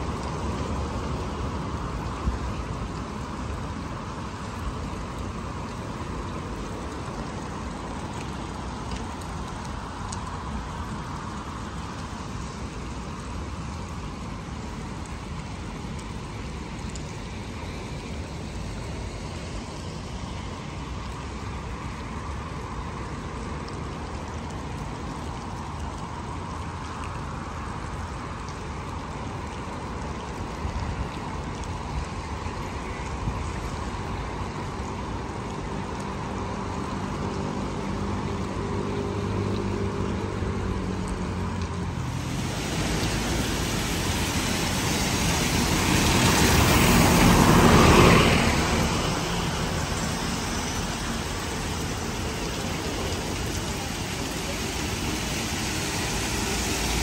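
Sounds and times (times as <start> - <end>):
rushing water: 0.0 - 57.0.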